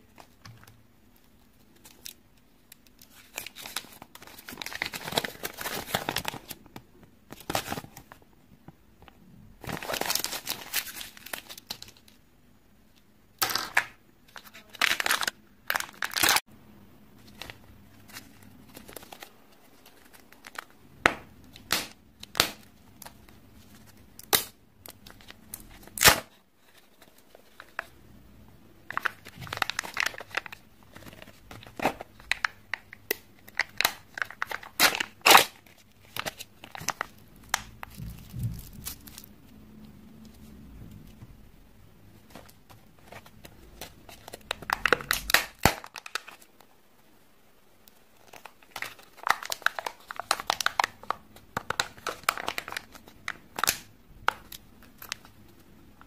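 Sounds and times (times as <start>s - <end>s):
foil crinkling and tearing: 3.1s - 6.6s, 9.6s - 12.0s, 14.4s - 16.4s, 28.9s - 32.9s, 33.5s - 39.3s, 48.2s - 53.9s.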